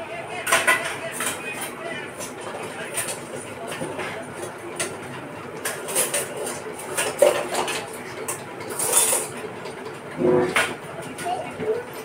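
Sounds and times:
steel utensils clinking: 0:05.6 - 0:09.3.

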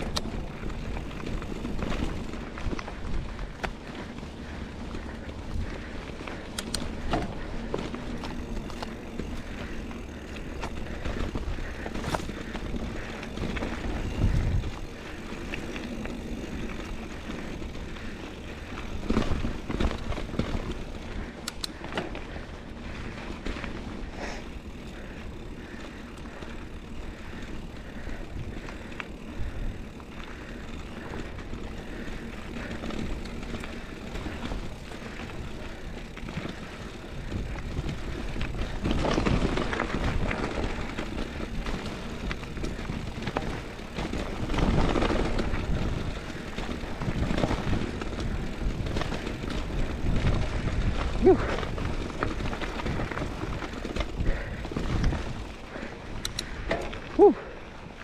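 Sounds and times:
bike clicks and rattles: 0:00.0 - 0:58.0
bike tyres rumbling on dirt: 0:00.0 - 0:58.0.

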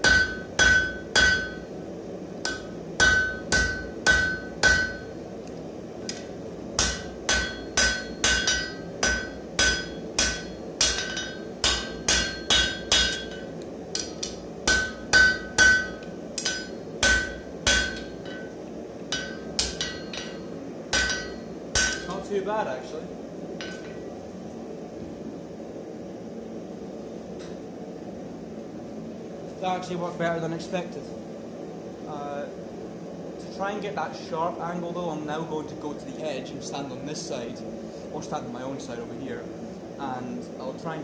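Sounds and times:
hammer striking anvil: 0:00.0 - 0:01.6, 0:02.5 - 0:05.1, 0:06.8 - 0:18.5, 0:19.1 - 0:22.2.

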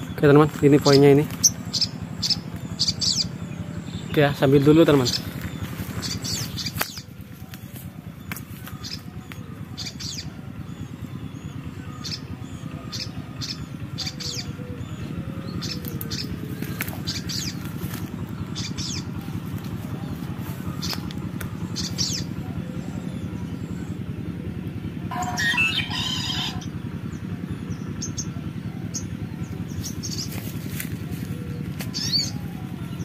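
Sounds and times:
high bird chirps: 0:00.0 - 0:07.2, 0:25.1 - 0:33.0
low hum: 0:00.0 - 0:33.0.

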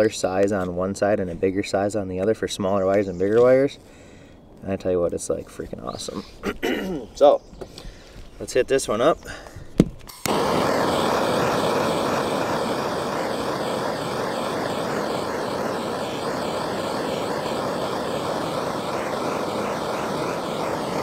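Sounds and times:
faint wavering whine: 0:10.1 - 0:21.0
heat gun fan blowing: 0:10.1 - 0:21.0.

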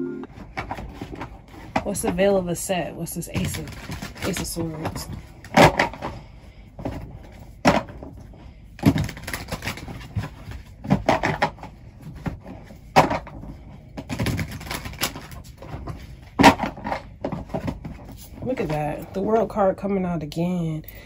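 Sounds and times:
cards being shuffled: 0:08.9 - 0:11.0, 0:14.1 - 0:16.0.

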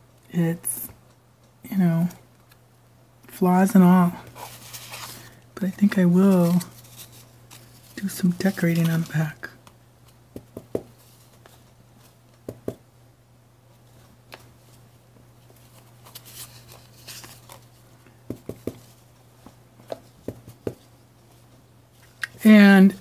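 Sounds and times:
low steady hum: 0:00.0 - 0:23.0
paper tags handled: 0:04.4 - 0:09.6.

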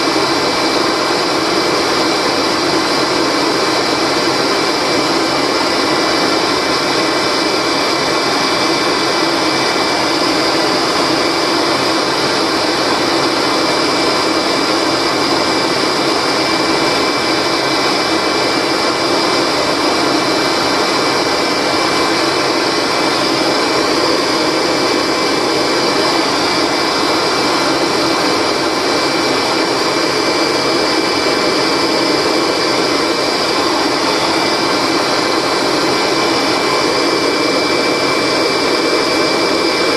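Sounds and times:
exhaust air rushing: 0:00.0 - 0:39.9
thin high whine: 0:00.0 - 0:39.9
vacuum cleaner motor running: 0:00.0 - 0:39.9.

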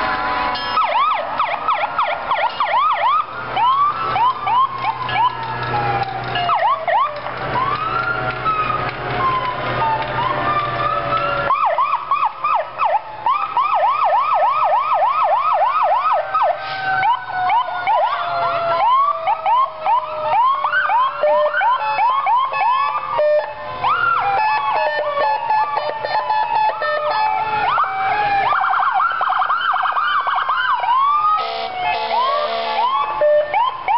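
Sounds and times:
fast siren yelp: 0:00.0 - 0:33.9
fire truck sirens wailing: 0:00.0 - 0:33.9.

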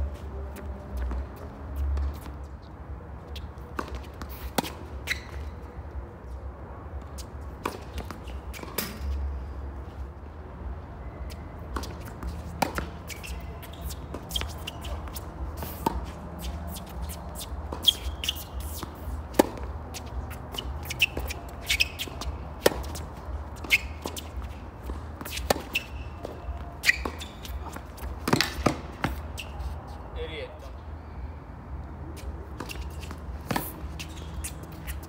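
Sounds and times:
tennis ball bouncing: 0:03.4 - 0:05.6, 0:07.1 - 0:09.1, 0:11.7 - 0:29.8, 0:32.2 - 0:35.0
tennis racket hits: 0:24.9 - 0:29.2.

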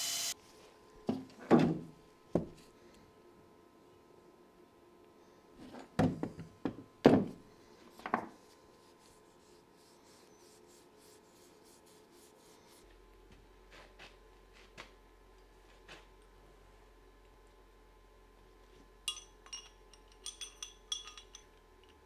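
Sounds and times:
knocks on workbench: 0:01.1 - 0:02.6, 0:06.0 - 0:07.4.

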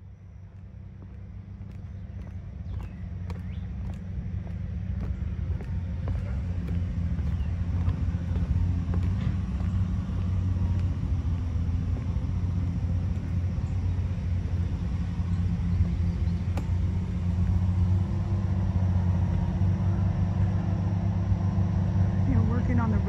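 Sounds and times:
construction machinery engines droning: 0:00.0 - 0:23.0.

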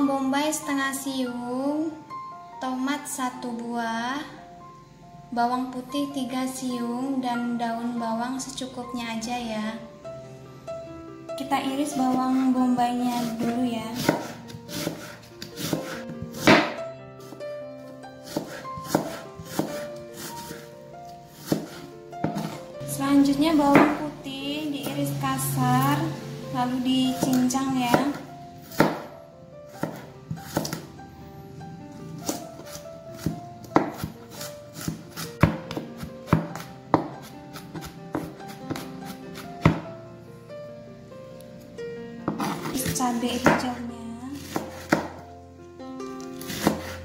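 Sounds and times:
background music: 0:00.0 - 0:47.0
knife chopping on cutting board: 0:13.1 - 0:17.4, 0:18.2 - 0:20.7, 0:21.3 - 0:22.6, 0:23.7 - 0:24.0, 0:27.2 - 0:29.0, 0:29.7 - 0:30.8, 0:32.2 - 0:39.8, 0:42.3 - 0:43.8, 0:44.4 - 0:45.2, 0:46.3 - 0:47.0.

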